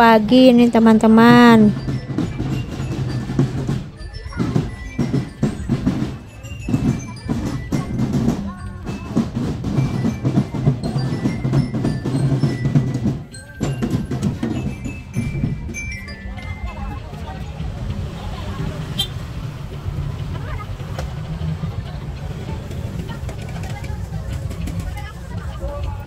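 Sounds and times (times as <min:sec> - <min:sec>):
marching drums beating: 0:00.0 - 0:26.0
glockenspiel notes: 0:00.3 - 0:19.1.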